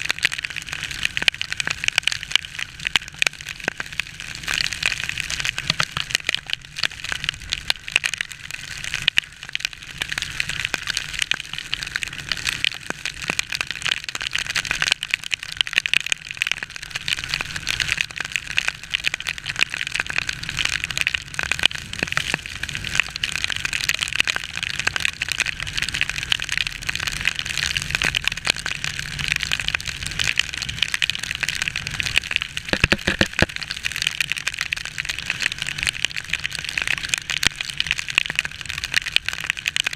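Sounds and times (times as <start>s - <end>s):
heavy rain pattering: 0.0s - 39.9s
motorcycle rumble: 32.7s - 33.5s.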